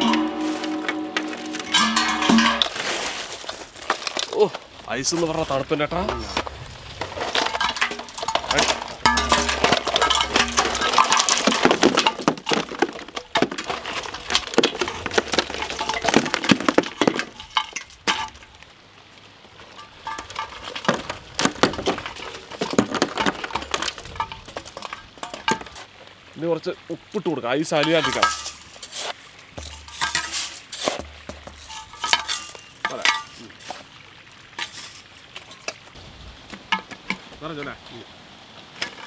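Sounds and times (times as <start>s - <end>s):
ice clattering into metal drum: 0.0s - 4.6s, 5.9s - 18.6s, 19.6s - 25.9s, 27.7s - 33.9s, 34.6s - 35.8s.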